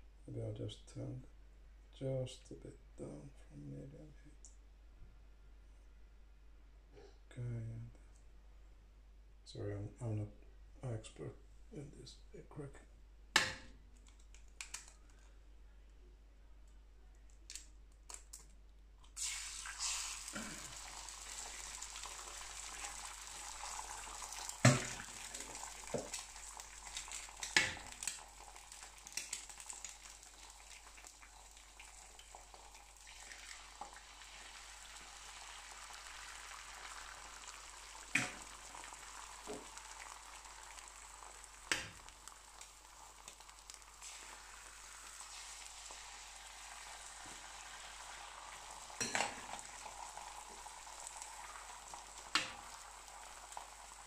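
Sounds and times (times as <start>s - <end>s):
eggs being cracked: 13.4s - 15.2s, 17.3s - 19.9s, 24.0s - 30.6s, 37.8s - 44.3s
eggs sizzling on a griddle: 19.2s - 54.0s.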